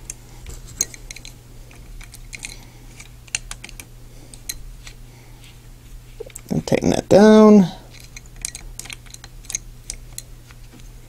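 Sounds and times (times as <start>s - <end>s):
plastic toy parts clicking: 2.0s - 4.5s, 7.9s - 10.2s.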